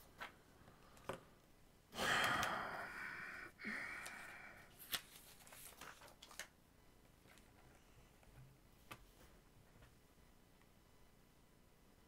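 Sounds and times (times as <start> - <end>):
rustling: 4.8 - 6.5.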